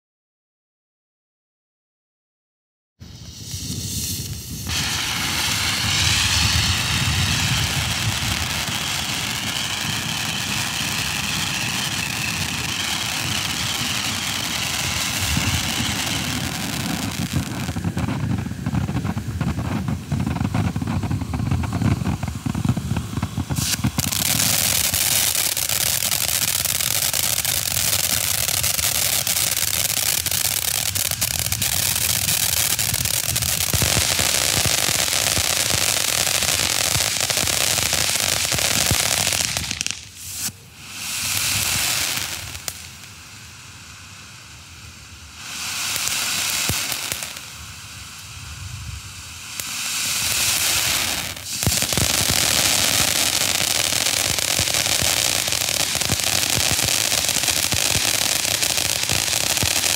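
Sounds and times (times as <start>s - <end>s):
firework crackling: 3.0s - 59.9s
firework fountain roaring: 3.0s - 59.9s
sparks hissing: 3.0s - 59.9s
high whistle: 3.1s - 18.1s.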